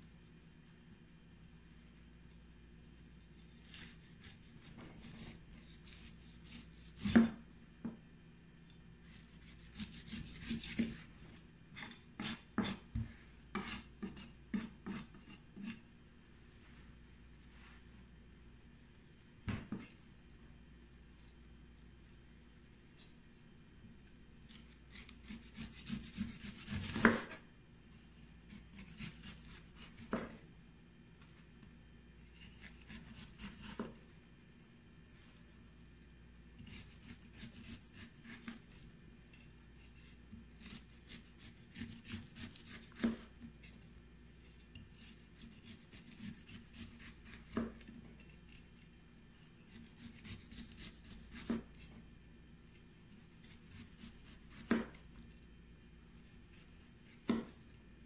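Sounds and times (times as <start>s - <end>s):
knife scraping squash skin: 3.3s - 7.4s, 9.0s - 12.8s, 13.6s - 15.8s, 24.4s - 27.4s, 28.5s - 30.3s, 32.3s - 34.0s, 36.6s - 48.8s, 49.6s - 52.0s, 53.1s - 55.0s.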